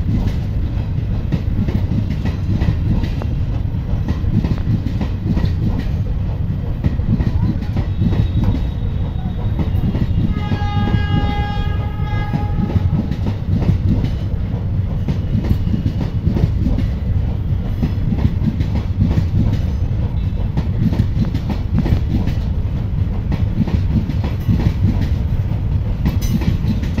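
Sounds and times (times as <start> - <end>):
train rumbling past: 0.0 - 27.0
train horn: 7.9 - 13.3.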